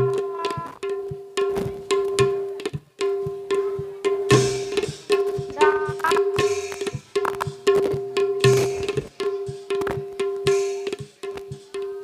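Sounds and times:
drum strokes: 0:00.0 - 0:12.0
steady held note: 0:05.5 - 0:07.3.

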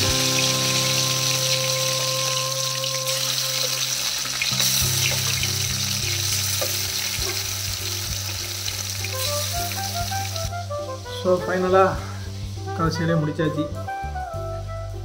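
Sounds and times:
chicken sizzling in oil: 0:00.0 - 0:10.7
background music with beat: 0:00.0 - 0:15.0.

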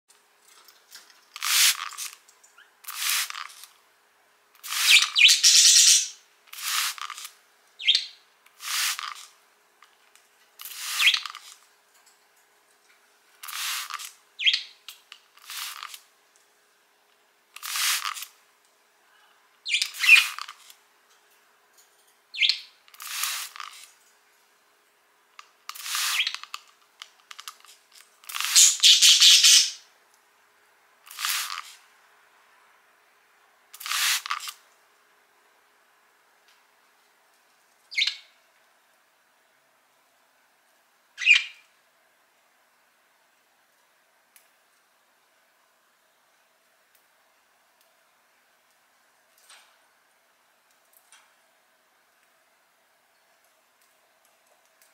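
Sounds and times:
spray bottle spritzing: 0:01.4 - 0:02.2, 0:02.8 - 0:03.7, 0:04.6 - 0:07.3, 0:08.6 - 0:09.3, 0:10.6 - 0:11.6, 0:13.4 - 0:14.1, 0:15.4 - 0:16.0, 0:17.6 - 0:18.3, 0:22.9 - 0:23.9, 0:25.7 - 0:26.6, 0:28.2 - 0:29.6, 0:31.1 - 0:31.8, 0:33.7 - 0:34.6
budgie chirps: 0:04.6 - 0:06.8, 0:28.3 - 0:29.8.

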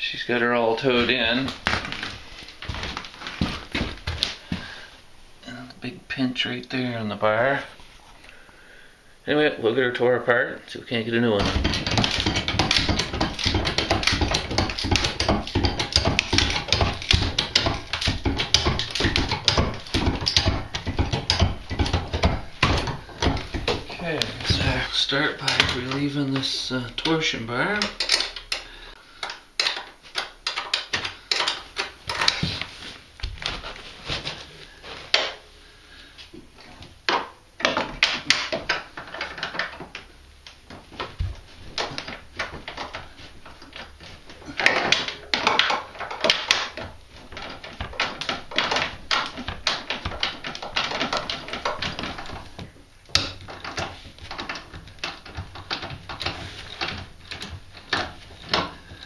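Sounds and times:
tools clanking on metal: 0:11.4 - 0:32.5, 0:40.7 - 0:59.0.

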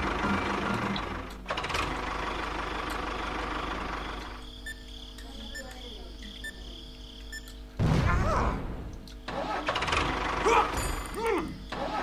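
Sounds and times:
engine-like running noise: 0:00.0 - 0:06.2, 0:08.6 - 0:12.0.

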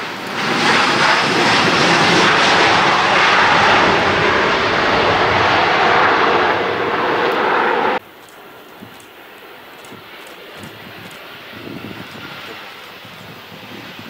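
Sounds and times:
jet engines roaring: 0:00.0 - 0:14.0.

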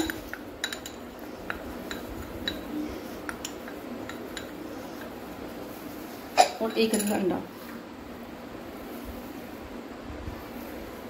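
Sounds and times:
spoon clinking on ceramic bowl: 0:00.0 - 0:02.7, 0:03.3 - 0:04.6.

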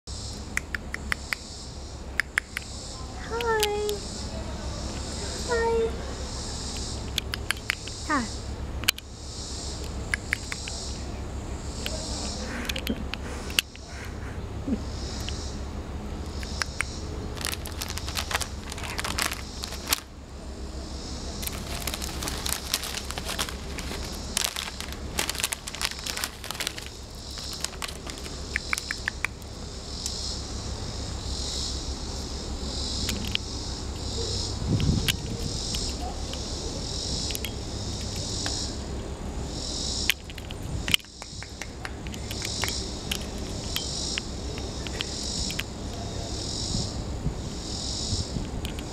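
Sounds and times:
insects chirping: 0:00.1 - 0:48.9
crackly clicking: 0:00.5 - 0:01.4, 0:06.7 - 0:08.0, 0:09.8 - 0:10.9, 0:16.2 - 0:20.1, 0:21.4 - 0:30.2, 0:33.0 - 0:33.5, 0:34.7 - 0:36.5, 0:37.2 - 0:38.6, 0:40.0 - 0:46.0.

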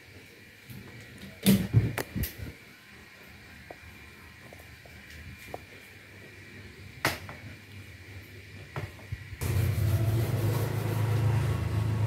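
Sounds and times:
sponge scrubbing wet car: 0:09.4 - 0:12.0.

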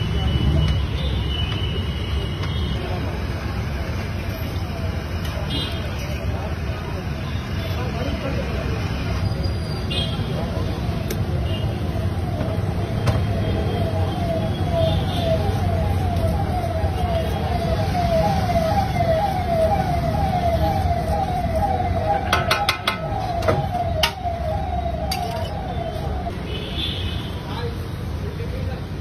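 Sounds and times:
low street rumble: 0:00.0 - 0:29.0
siren yelping: 0:11.7 - 0:26.4.

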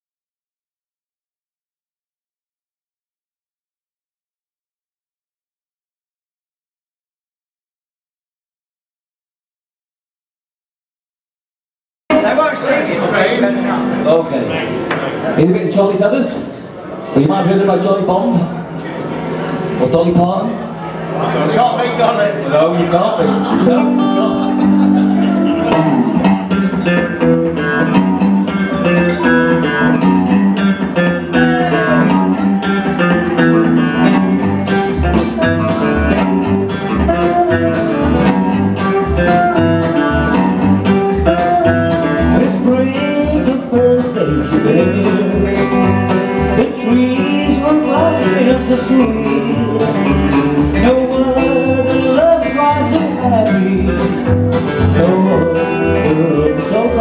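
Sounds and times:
live country band playing: 0:12.1 - 0:57.0.

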